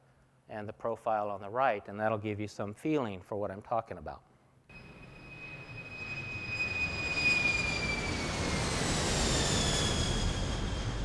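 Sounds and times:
jet airliner engine whine: 0:04.7 - 0:11.0
jet engine rumble: 0:04.8 - 0:11.0.

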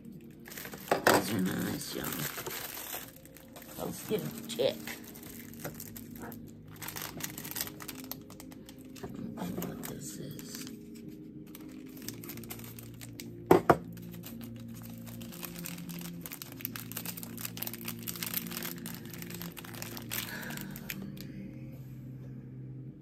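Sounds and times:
plastic packaging crinkling: 0:00.0 - 0:21.3.

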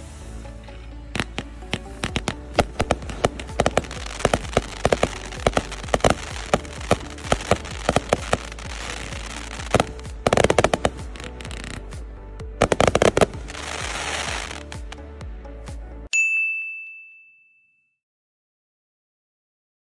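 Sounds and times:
fireworks launching and bursting: 0:00.7 - 0:15.0.

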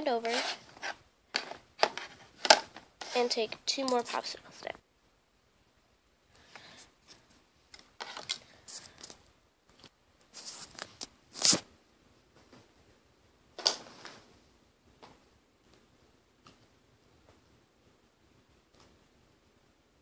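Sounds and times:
rustling and clicking handling noises: 0:00.2 - 0:04.2, 0:06.4 - 0:11.6.

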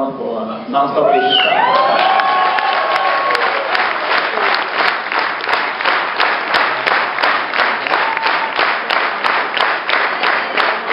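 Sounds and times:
audience applauding: 0:01.6 - 0:10.9
sharp rhythmic claps: 0:02.6 - 0:10.9.

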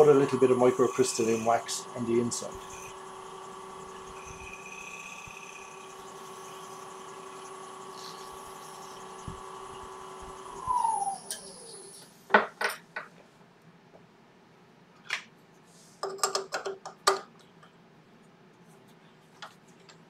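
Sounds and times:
wood lathe motor whine: 0:00.0 - 0:12.2.

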